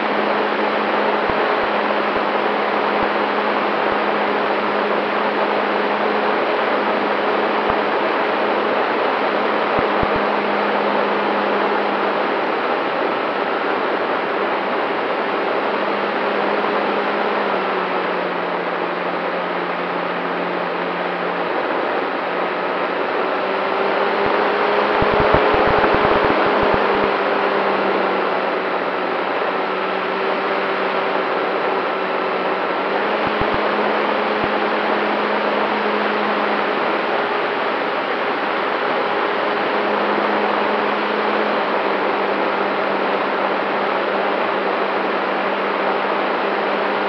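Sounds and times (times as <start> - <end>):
model plane motor and propeller hum: 0.0 - 47.0
wind rush over airframe: 20.7 - 40.4
wind buffeting on microphone: 24.1 - 27.3.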